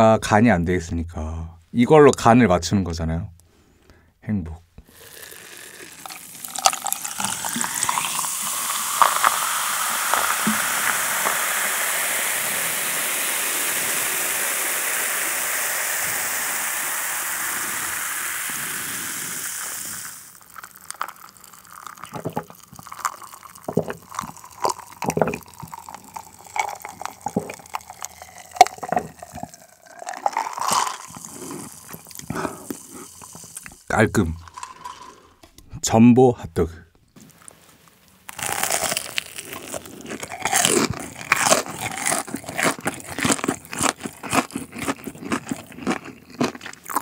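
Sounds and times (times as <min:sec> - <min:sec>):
cola fizzing into a glass: 0:04.9 - 0:35.4
gulps and swallows: 0:20.3 - 0:35.6.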